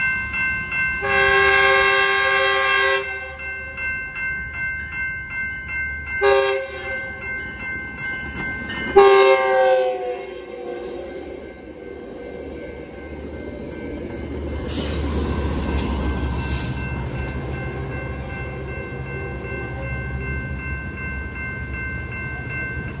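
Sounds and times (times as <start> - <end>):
train passing: 0.0 - 23.0
steady high tones: 10.1 - 23.0.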